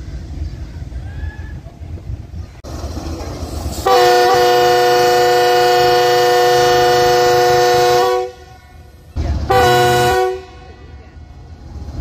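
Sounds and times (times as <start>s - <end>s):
locomotive air horn chord: 3.8s - 8.6s, 9.5s - 11.0s.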